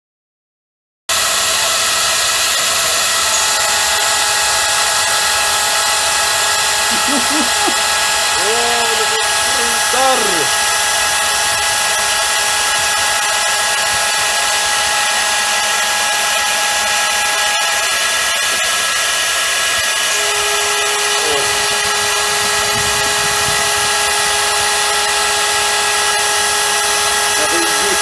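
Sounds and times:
milling spindle high whine: 1.1 - 28.0
hiss of cutting chips: 6.8 - 10.6.

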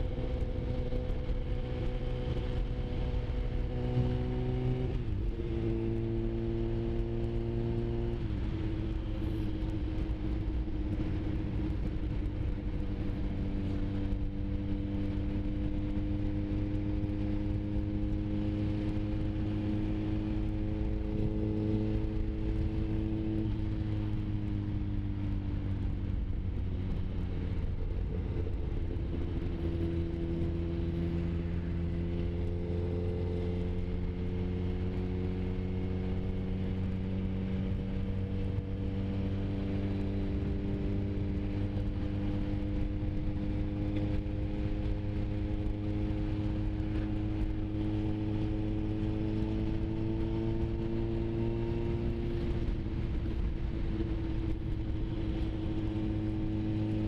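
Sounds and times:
motorcycle engine running: 0.0 - 57.0
wind rush: 7.5 - 57.0.

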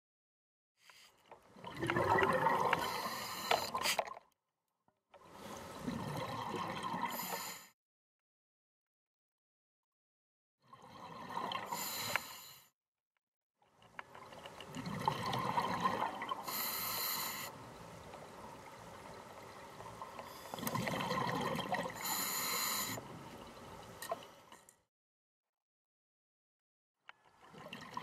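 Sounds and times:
bubbling exhaled air: 1.6 - 4.2, 20.2 - 23.2
regulator inhalation hiss: 16.5 - 17.5, 22.0 - 23.0.

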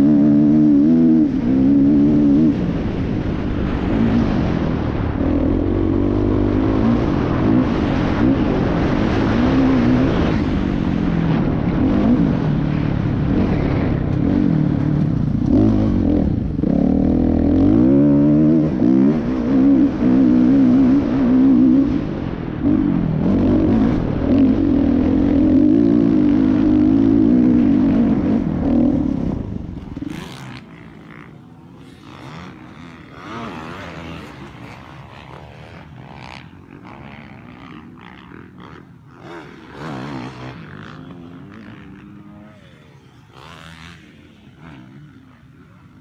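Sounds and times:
dirt bike engine revving: 0.0 - 46.0.

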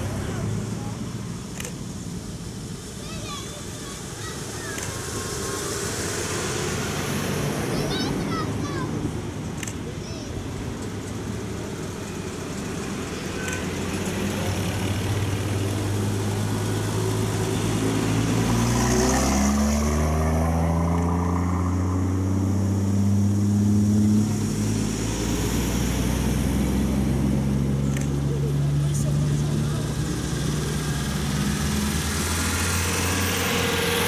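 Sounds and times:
car engines humming: 0.0 - 34.0
heavy truck engine passing: 2.2 - 34.0
jeep driving past: 12.9 - 34.0.

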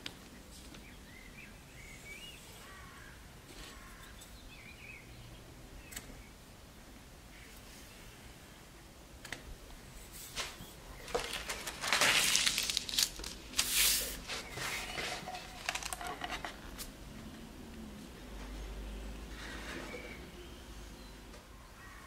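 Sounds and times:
baking paper rustling: 10.1 - 16.9.

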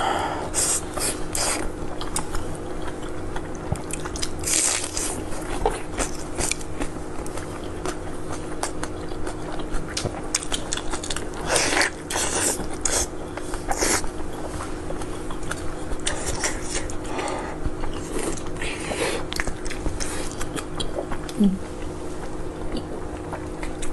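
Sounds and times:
steady low hum: 0.0 - 23.9
crunchy bites and chewing: 1.0 - 17.0.

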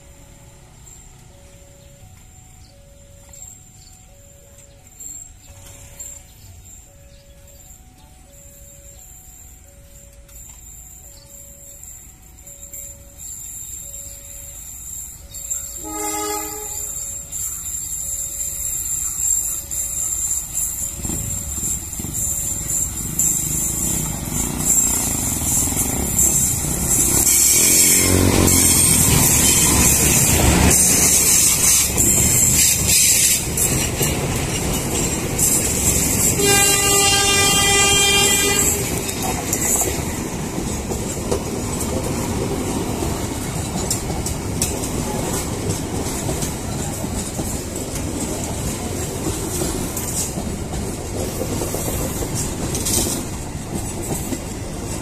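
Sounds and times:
diesel train rumble: 0.0 - 55.0
wheels clacking over rail joints: 15.3 - 55.0
train horn: 15.8 - 17.2, 27.0 - 31.3, 36.2 - 39.3.

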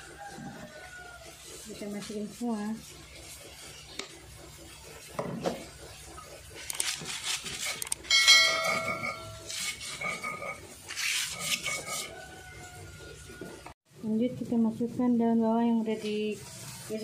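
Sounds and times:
stone pestle grinding in mortar: 6.7 - 13.6.

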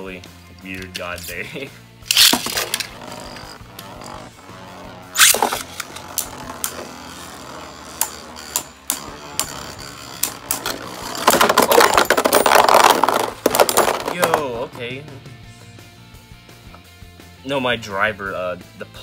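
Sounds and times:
launcher ripcord zip: 2.1 - 14.6
tops clashing and clicking: 2.1 - 14.7
spinning tops whirring: 2.1 - 14.8.

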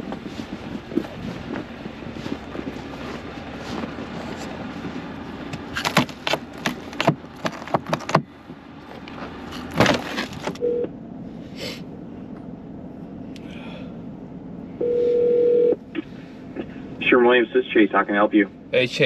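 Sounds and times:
ice cracking on car door: 5.6 - 8.2, 9.5 - 10.6
short beep: 10.6 - 10.9, 14.8 - 15.8.

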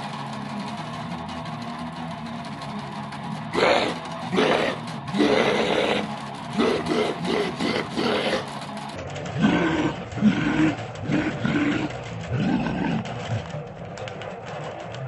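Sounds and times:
electric guitar: 0.0 - 15.0
growled metal vocals: 2.8 - 13.9.

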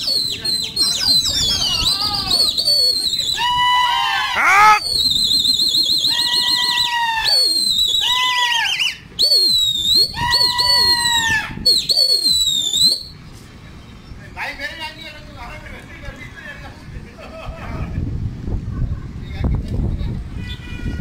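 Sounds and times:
high warbling whistle melody: 8.7 - 13.2.

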